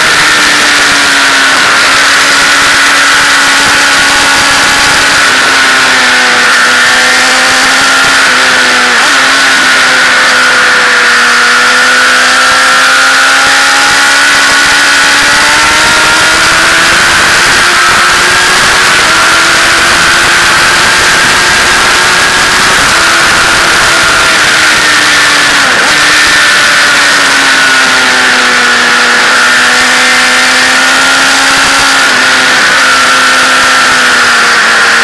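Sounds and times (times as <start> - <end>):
wind rush on microphone: 0.0 - 11.5, 13.4 - 29.4
motorcycle engine running: 0.0 - 35.0.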